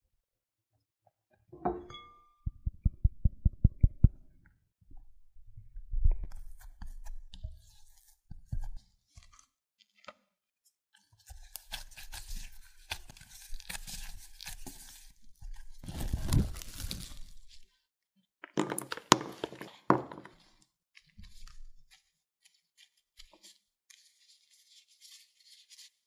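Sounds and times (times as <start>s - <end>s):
hands kneading dough: 11.2s - 17.6s, 19.1s - 26.0s.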